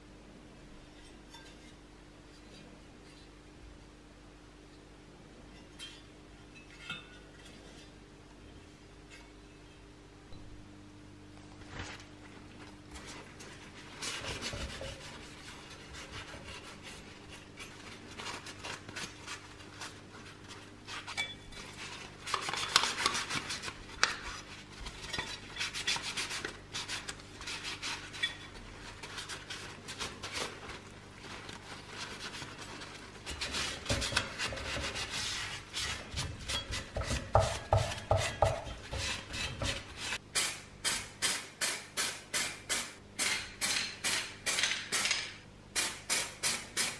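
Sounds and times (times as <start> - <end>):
cloth wiping sheet metal: 13.0 - 40.2.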